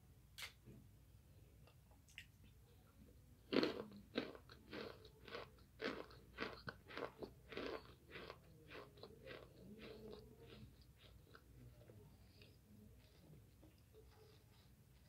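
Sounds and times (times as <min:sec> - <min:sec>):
person chewing crunchy food: 0:03.4 - 0:13.3.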